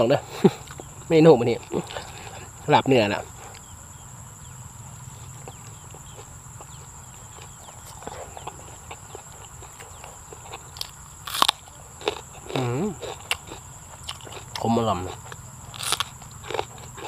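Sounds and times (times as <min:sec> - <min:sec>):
high-pitched insect drone: 0:00.0 - 0:17.0
close-up chewing: 0:00.4 - 0:03.7, 0:04.4 - 0:17.0
sharp crackle: 0:15.3 - 0:16.8.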